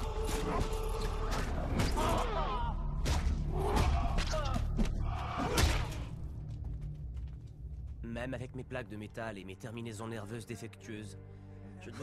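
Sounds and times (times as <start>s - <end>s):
men yelling and groaning: 0.0s - 6.1s.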